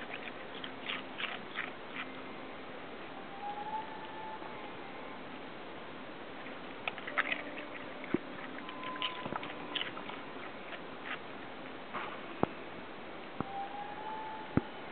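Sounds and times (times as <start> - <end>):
dog chewing and crunching: 0.0 - 2.2, 6.4 - 12.2.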